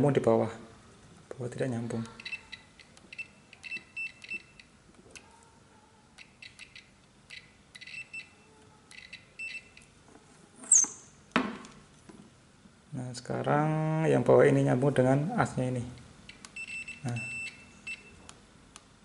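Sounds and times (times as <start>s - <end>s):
multimeter buzzer beeping: 6.4s - 8.3s, 9.0s - 9.8s, 16.6s - 18.2s.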